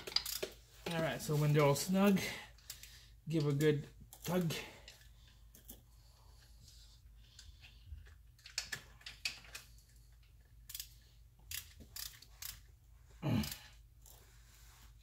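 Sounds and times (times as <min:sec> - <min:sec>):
hand ratchet clicking: 0:00.0 - 0:00.6, 0:10.6 - 0:12.7, 0:13.4 - 0:13.6.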